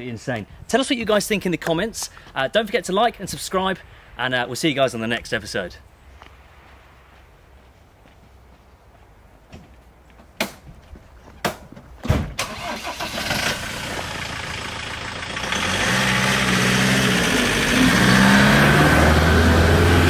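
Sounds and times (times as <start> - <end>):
engine starting: 12.4 - 14.4
vehicle driving past: 15.4 - 20.0.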